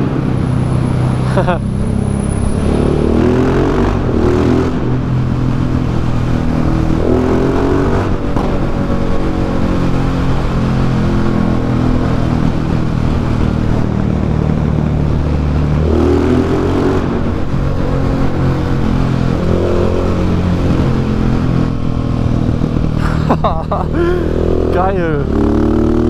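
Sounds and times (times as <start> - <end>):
motorcycle engine echoing in tunnel: 0.0 - 26.0.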